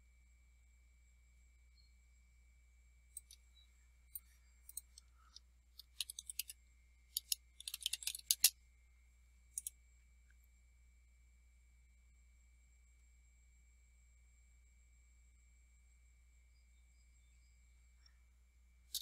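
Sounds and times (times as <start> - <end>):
keyboard typing: 5.8 - 6.5, 7.2 - 8.5.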